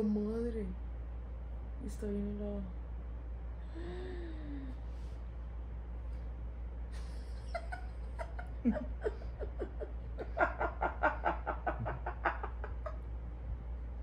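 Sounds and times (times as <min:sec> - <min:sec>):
woman laughing: 0:06.9 - 0:13.1.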